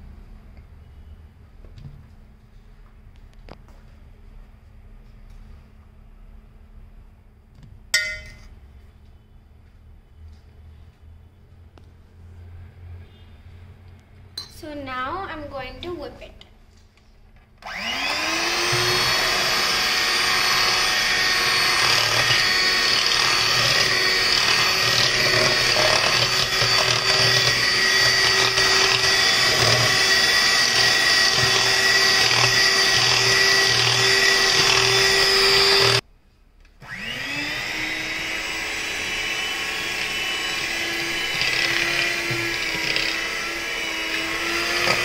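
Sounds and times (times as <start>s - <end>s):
electric hand mixer whipping: 17.6s - 36.0s, 36.8s - 45.0s.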